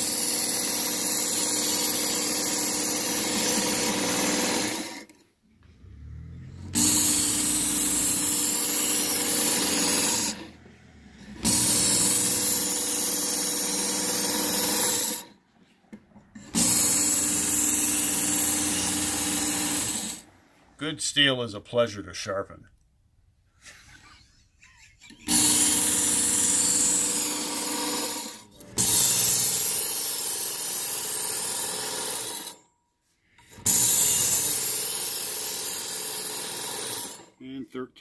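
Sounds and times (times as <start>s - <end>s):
belt sharpener grinding knife: 0.0s - 5.2s, 6.8s - 10.5s.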